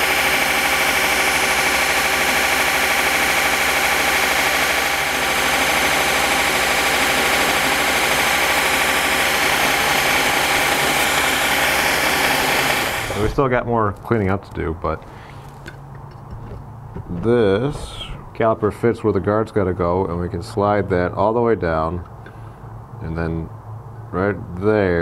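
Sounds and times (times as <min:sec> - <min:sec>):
belt grinder whine: 0:00.0 - 0:13.4.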